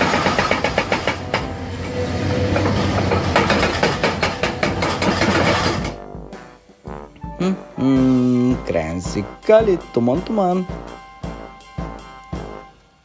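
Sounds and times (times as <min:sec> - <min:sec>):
hydraulic breaker hammering rock: 0:00.0 - 0:01.6, 0:02.6 - 0:06.0
excavator engine humming: 0:00.0 - 0:06.0.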